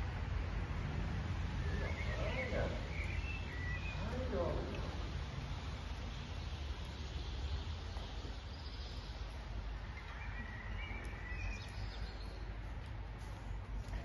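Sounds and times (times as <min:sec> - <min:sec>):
faint bird chirps: 0:10.0 - 0:12.5.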